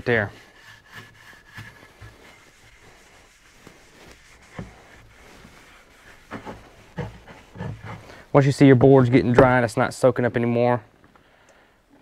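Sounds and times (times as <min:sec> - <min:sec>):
cloth rag rubbing wood: 0:00.0 - 0:09.2.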